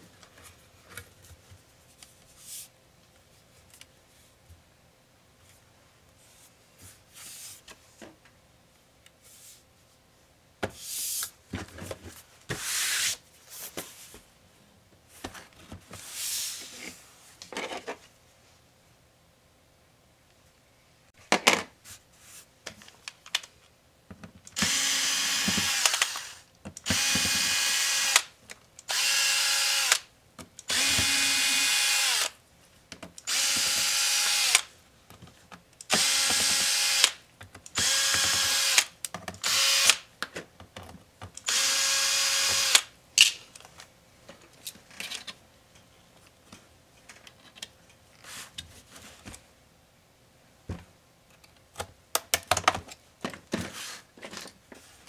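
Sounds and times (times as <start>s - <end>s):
electric screwdriver whirring: 24.6s - 28.3s, 28.9s - 30.0s, 30.7s - 32.3s, 33.3s - 34.7s, 35.9s - 37.2s, 37.8s - 40.0s, 41.4s - 42.9s.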